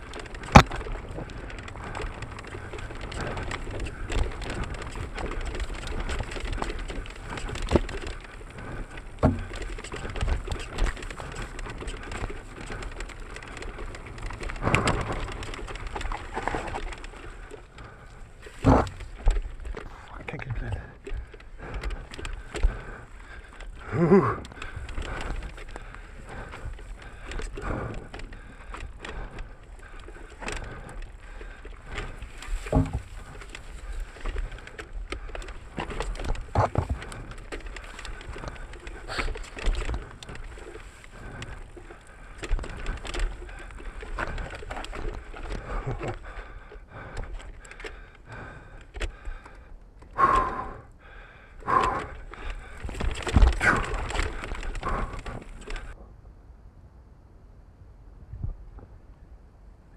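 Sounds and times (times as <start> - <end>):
mountain bike rattling over rocks: 0.0 - 56.0.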